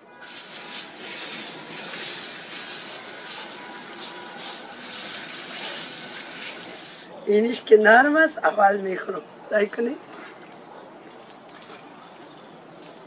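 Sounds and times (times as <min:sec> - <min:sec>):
water running steadily: 0:00.2 - 0:07.2.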